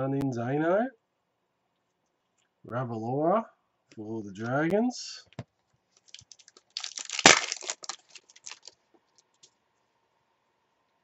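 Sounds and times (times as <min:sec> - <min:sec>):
wrapper tearing and crinkling: 0:06.0 - 0:08.8.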